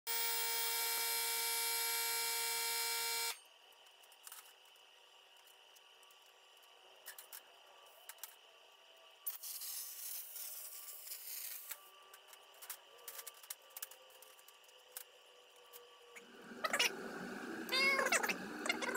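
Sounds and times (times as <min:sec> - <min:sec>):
high buzzing tone: 0:00.1 - 0:03.5
faint high whine: 0:00.1 - 0:18.9.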